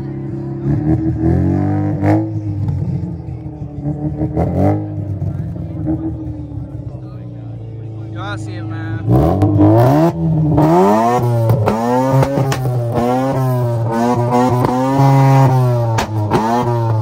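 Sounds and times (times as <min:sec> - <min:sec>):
car engine revving: 0:00.0 - 0:17.0
exhaust pops and cracks: 0:11.6 - 0:12.8, 0:15.9 - 0:16.5.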